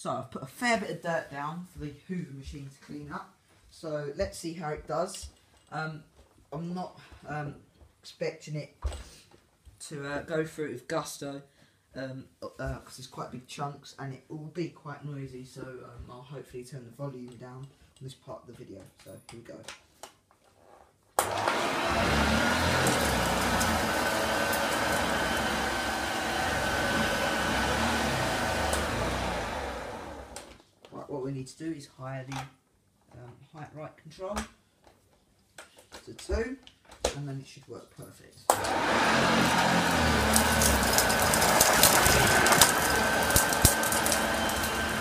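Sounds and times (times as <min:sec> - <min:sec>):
vacuum cleaner motor whine: 0:21.2 - 0:30.6, 0:38.5 - 0:45.0.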